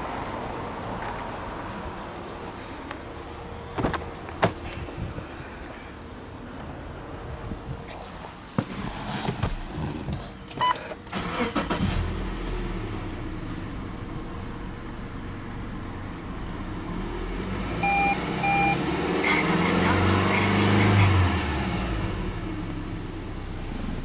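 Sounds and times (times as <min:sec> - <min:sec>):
car engine starting and idling: 0:08.7 - 0:24.0
engine revving: 0:11.1 - 0:13.4, 0:16.9 - 0:22.6
short beep: 0:17.8 - 0:18.8.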